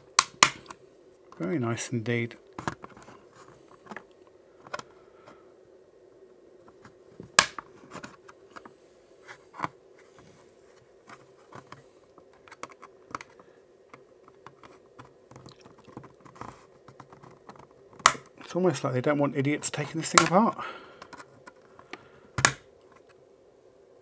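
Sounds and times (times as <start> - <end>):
loud plastic snap: 0.1 - 0.8, 7.3 - 7.6, 18.0 - 18.3, 22.4 - 22.7.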